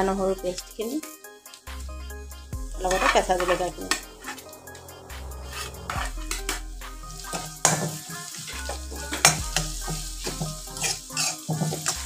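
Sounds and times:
metal spoon scraping pan: 2.8s - 12.0s
onions sizzling in hot oil: 6.3s - 12.0s.

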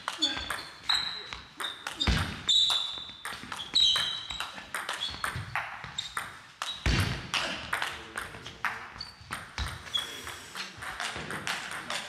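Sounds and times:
shoe squeaks on floor: 0.1s - 7.2s, 8.9s - 10.8s.

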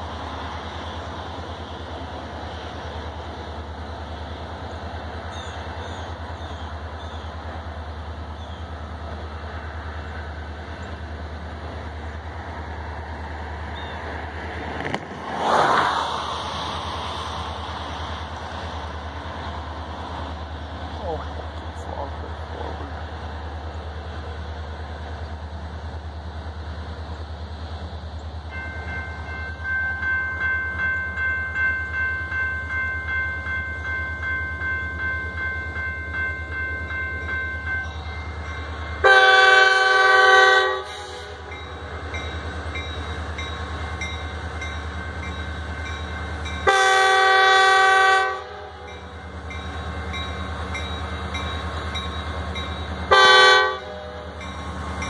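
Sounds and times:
locomotive air horn blasts: 39.0s - 41.5s, 46.6s - 48.9s, 53.1s - 54.3s.

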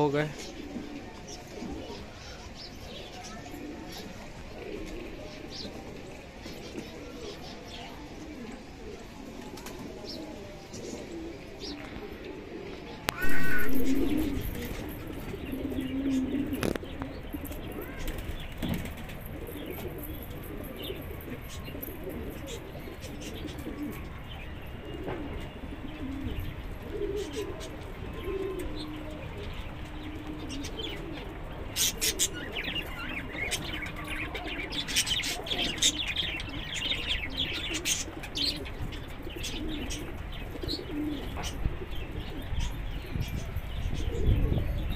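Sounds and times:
birds chirping: 0.0s - 44.9s
pigeons cooing: 0.0s - 44.9s
loud short bird call: 13.1s - 14.6s
wings flapping: 17.7s - 20.0s.

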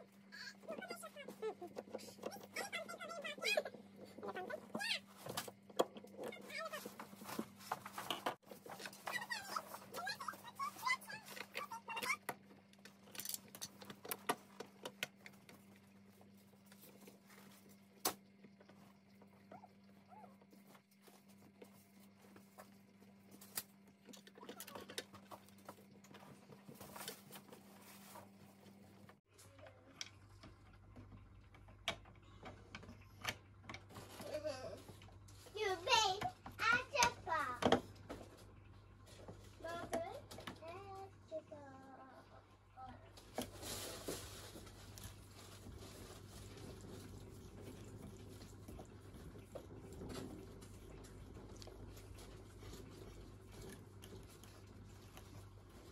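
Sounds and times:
low steady hum: 0.0s - 55.9s.

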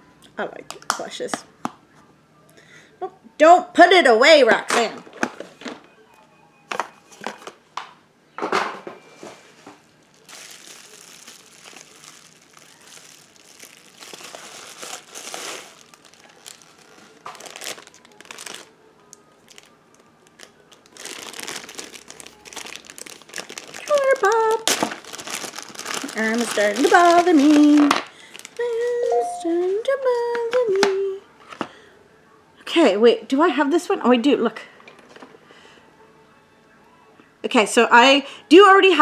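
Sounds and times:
packaging crinkling: 9.8s - 29.1s.

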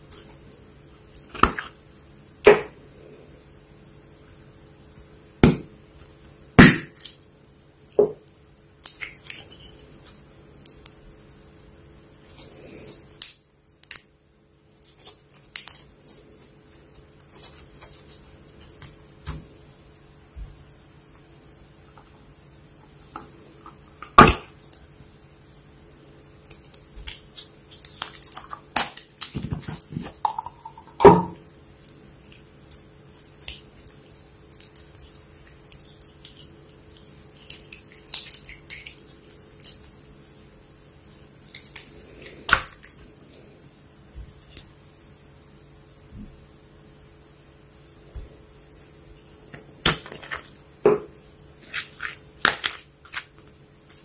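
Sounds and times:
slime squishing and popping: 5.4s - 7.2s, 24.0s - 24.6s
slime crackling: 12.2s - 19.3s, 26.3s - 31.0s, 32.6s - 43.3s.

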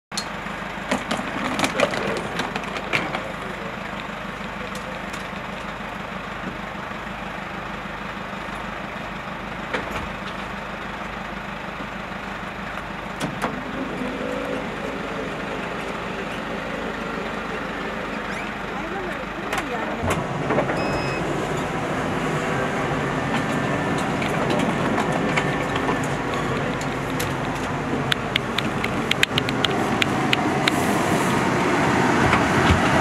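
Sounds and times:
minibus engine idling: 0.1s - 33.0s
knocks and clicks: 23.3s - 30.8s.

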